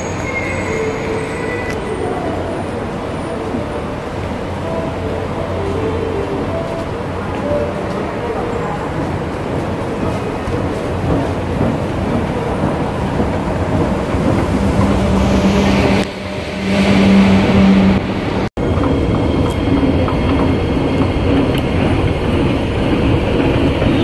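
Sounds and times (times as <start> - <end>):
station rumble: 0.0 - 24.0.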